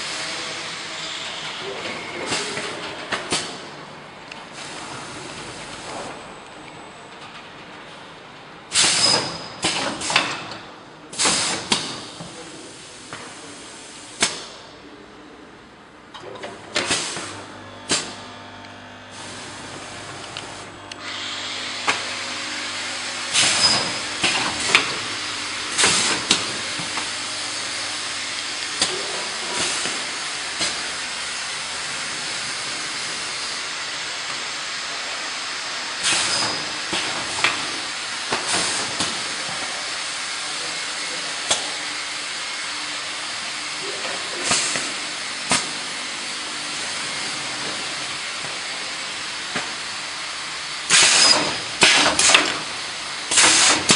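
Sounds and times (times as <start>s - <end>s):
short compressed air hisses: 8.7s - 9.2s, 50.9s - 52.4s, 53.3s - 53.9s
steady machine hiss: 19.1s - 53.9s.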